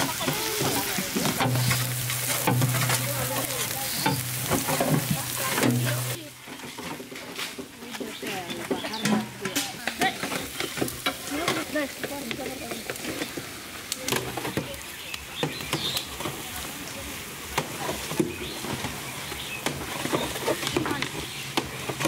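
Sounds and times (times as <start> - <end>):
oil sizzling in pan: 0.0 - 6.3, 9.0 - 20.4
metal spatulas scraping steel pan: 0.1 - 6.2.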